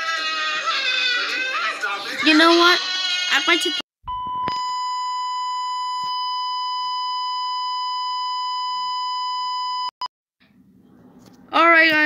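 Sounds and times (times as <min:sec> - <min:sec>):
steady test tone beep: 0:04.0 - 0:10.1.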